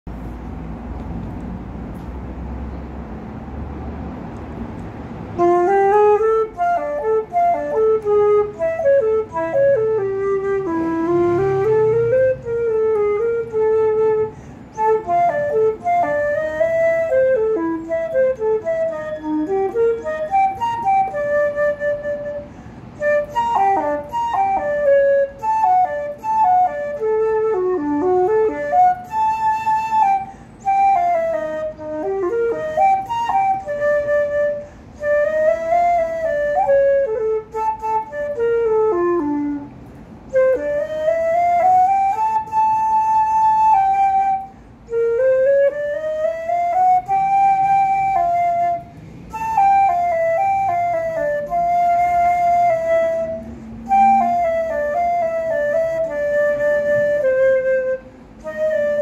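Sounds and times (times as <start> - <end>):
solo flute melody: 4.8 - 59.0
flute player breathing: 14.0 - 14.8, 22.2 - 23.0, 30.0 - 30.7, 34.4 - 35.1, 44.4 - 44.9, 48.8 - 49.4, 53.3 - 54.2.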